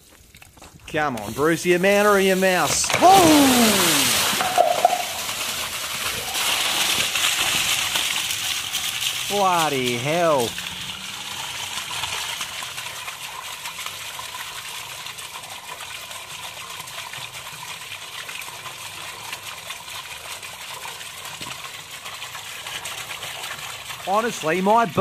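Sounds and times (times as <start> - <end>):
sewage gushing and splashing: 0.0 - 25.0.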